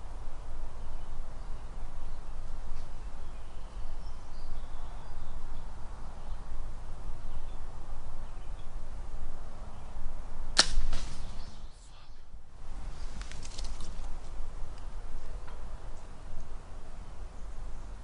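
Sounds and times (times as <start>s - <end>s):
bow string snap: 10.6s - 11.2s.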